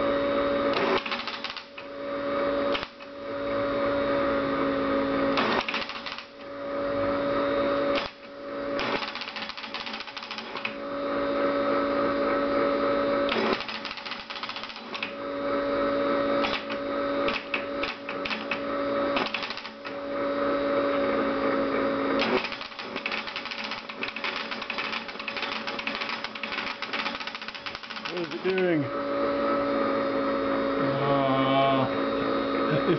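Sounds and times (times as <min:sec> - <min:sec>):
teletype machine hum: 0:00.7 - 0:02.0, 0:05.4 - 0:06.5, 0:07.9 - 0:10.8, 0:13.2 - 0:15.3, 0:16.3 - 0:20.1, 0:22.2 - 0:28.9
teletype keys clicking: 0:01.0 - 0:01.7, 0:05.6 - 0:06.3, 0:08.9 - 0:10.7, 0:13.4 - 0:15.0, 0:19.2 - 0:19.8, 0:22.2 - 0:28.7.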